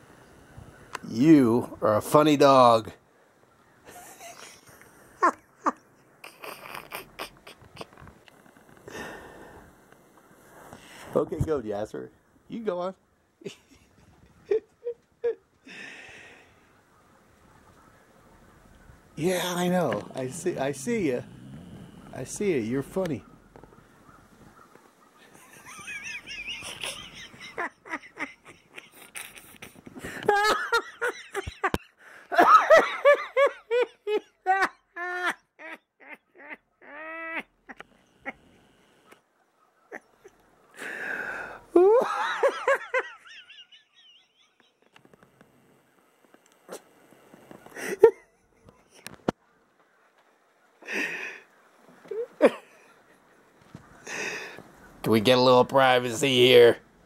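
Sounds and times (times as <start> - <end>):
person laughing: 3.9 - 8.1, 13.4 - 16.0, 25.3 - 38.4, 39.9 - 43.7, 47.8 - 48.9, 52.1 - 52.9
soft clicks and rustles: 7.3 - 8.9, 44.6 - 47.8, 48.6 - 50.8.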